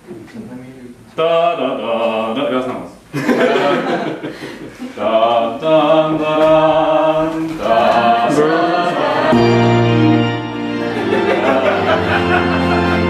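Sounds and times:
long held musical notes: 0:08.4 - 0:13.0.

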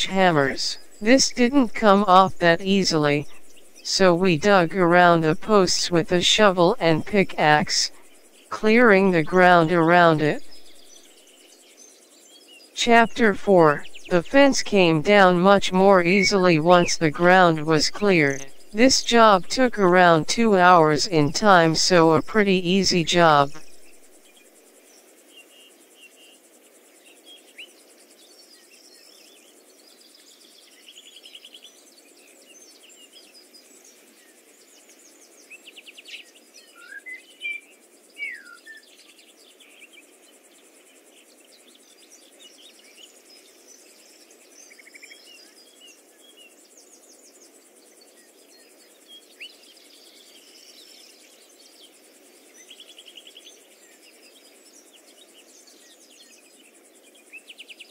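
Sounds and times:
steady low background noise: 0:00.0 - 0:11.2, 0:12.8 - 0:24.9.

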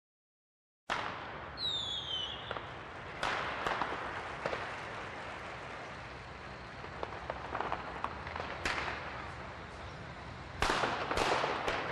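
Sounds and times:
firework bangs and crackles: 0:00.9 - 0:11.9
steady hiss: 0:01.0 - 0:11.9
firework whistle falling in pitch: 0:01.6 - 0:02.7.

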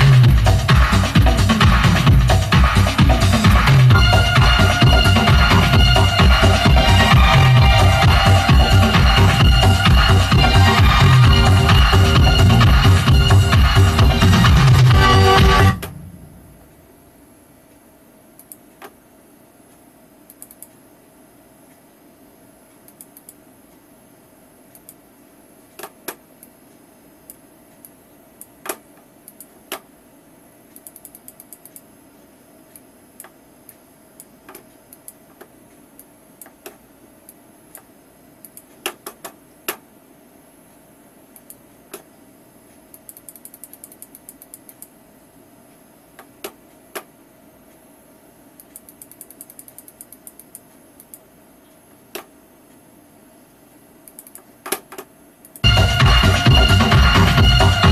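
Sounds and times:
steady hum: 0:00.0 - 0:57.9
computer clicks and ticking: 0:18.4 - 0:19.0, 0:19.7 - 0:20.9, 0:22.7 - 0:23.9, 0:24.7 - 0:25.1, 0:27.2 - 0:29.9, 0:30.7 - 0:31.9, 0:32.7 - 0:39.9, 0:41.3 - 0:42.1, 0:42.7 - 0:45.0, 0:48.5 - 0:52.9, 0:54.0 - 0:55.7.

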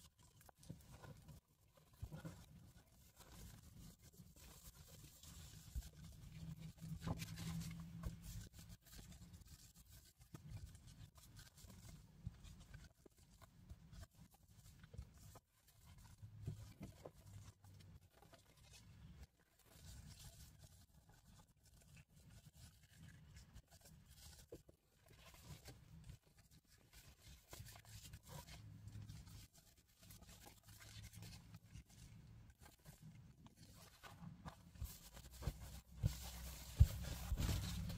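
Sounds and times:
pages rustling and turning: 0:33.6 - 0:37.9.

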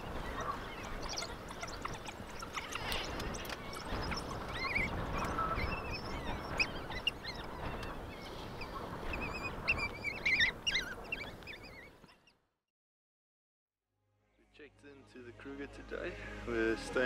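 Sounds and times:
wild dogs twittering: 0:00.0 - 0:12.3.

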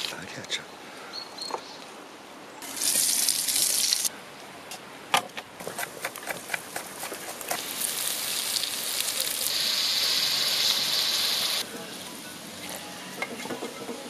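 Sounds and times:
onion sizzling in hot fat: 0:02.6 - 0:04.1, 0:06.1 - 0:13.8.

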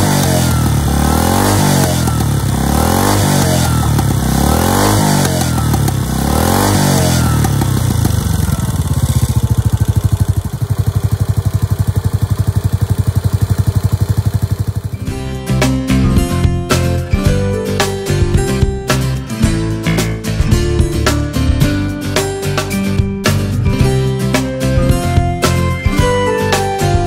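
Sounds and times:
motorcycle engine revving and idling: 0:00.0 - 0:19.6.

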